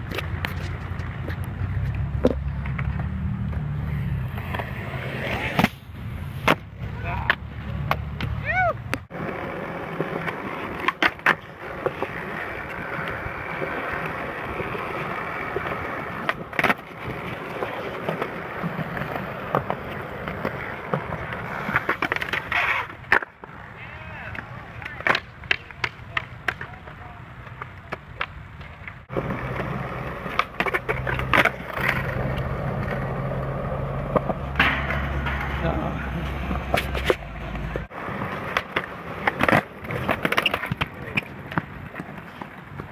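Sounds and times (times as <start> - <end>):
skateboard clacks: 0.0 - 5.8, 6.4 - 42.9
faint clicks of distant skateboards: 0.0 - 42.9
skateboard wheels rolling on concrete: 0.0 - 42.9
skateboard clacking on landing: 24.3 - 42.9.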